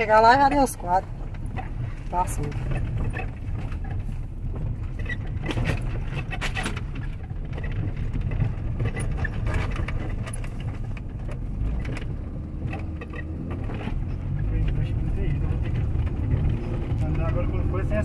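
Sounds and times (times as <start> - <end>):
car rattles and knocks: 0.0 - 18.0
engine and tyres rumbling: 0.0 - 18.0.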